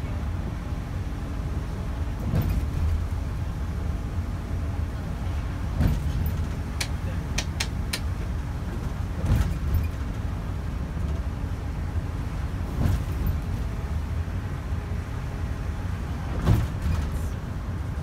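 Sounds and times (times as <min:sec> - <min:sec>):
low rumble of engine and road: 0:00.0 - 0:18.0
short knocks or rattles: 0:02.2 - 0:03.1, 0:05.7 - 0:08.1, 0:16.3 - 0:17.2.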